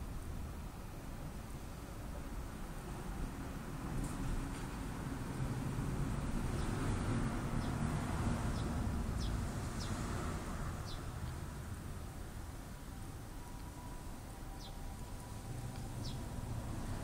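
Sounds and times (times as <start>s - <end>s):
birds chirping: 8.5s - 10.1s, 10.8s - 11.2s, 14.5s - 15.2s, 15.8s - 16.4s.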